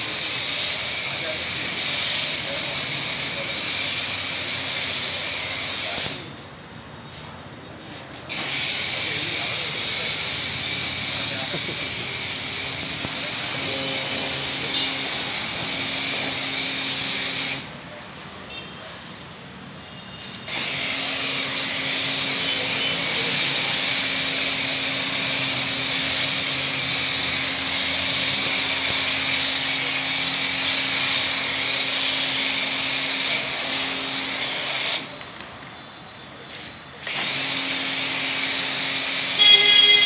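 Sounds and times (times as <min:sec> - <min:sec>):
pressure washer spray hissing: 0:00.0 - 0:06.4, 0:08.3 - 0:17.8, 0:20.5 - 0:35.2, 0:36.5 - 0:40.0.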